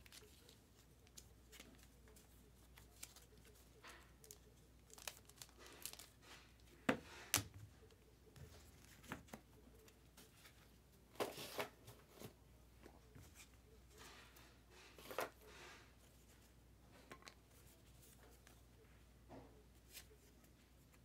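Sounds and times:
cards being handled: 0:00.0 - 0:12.4, 0:13.1 - 0:18.6, 0:19.8 - 0:21.0
wrapper crinkling and tearing: 0:02.8 - 0:06.6.

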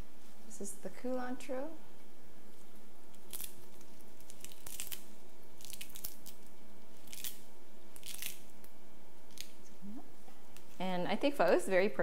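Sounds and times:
herb stems snapping: 0:03.1 - 0:08.7.

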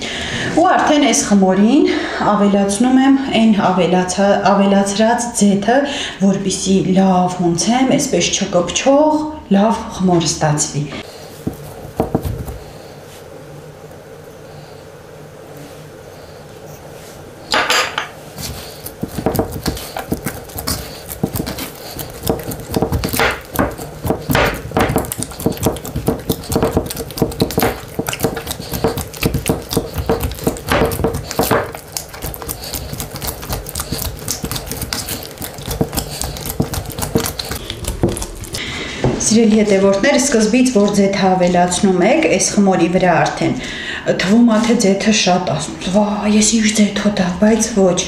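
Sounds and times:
hands kneading wet dough: 0:11.0 - 0:13.3, 0:18.3 - 0:42.5.

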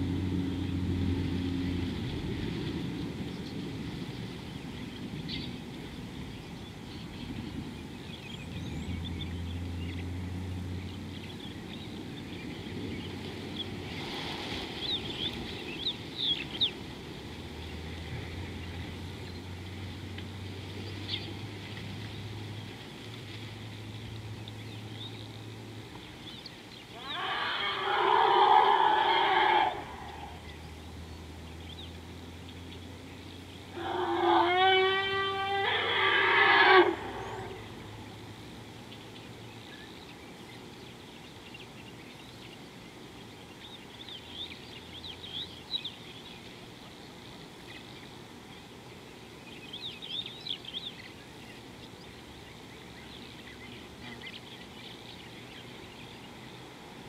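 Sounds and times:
low steady hum: 0:00.0 - 0:27.7, 0:28.4 - 0:34.2, 0:36.8 - 0:57.0
harsh animal call: 0:27.0 - 0:30.4, 0:33.8 - 0:37.8.

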